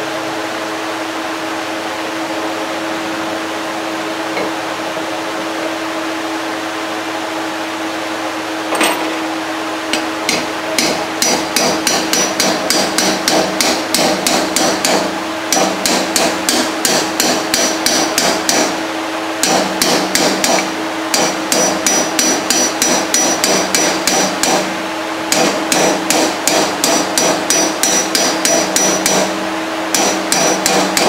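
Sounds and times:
steady background hum: 0:00.0 - 0:31.0
hammer tapping on metal: 0:09.9 - 0:18.7, 0:19.4 - 0:24.6, 0:25.3 - 0:29.3, 0:29.9 - 0:31.0.

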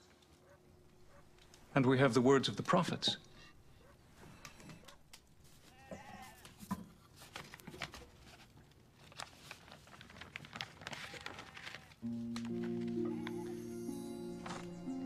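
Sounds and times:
faint bleat: 0:05.7 - 0:06.6, 0:13.0 - 0:13.7.

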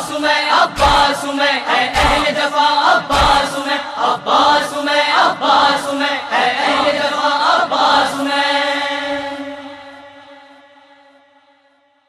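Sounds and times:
person chanting a lament: 0:00.0 - 0:11.1
low rhythmic thumps: 0:00.7 - 0:01.2, 0:02.0 - 0:03.6.

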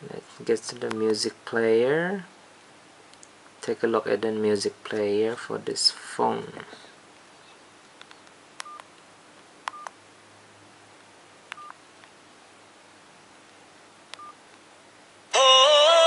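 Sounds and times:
key press clicks: 0:08.0 - 0:08.9, 0:09.6 - 0:09.9, 0:11.5 - 0:11.8
phone keypad beeps: 0:08.6 - 0:08.9, 0:09.7 - 0:09.9, 0:11.5 - 0:11.8, 0:14.2 - 0:14.4.

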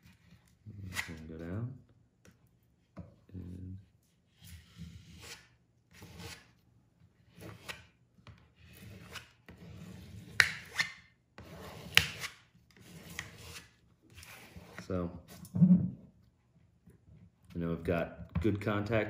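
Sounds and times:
plastic card scraping contact paper: 0:07.3 - 0:15.0.

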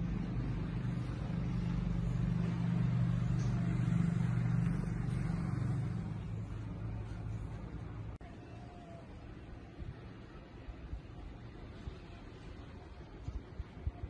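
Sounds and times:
vehicle engine passing: 0:00.0 - 0:08.2.

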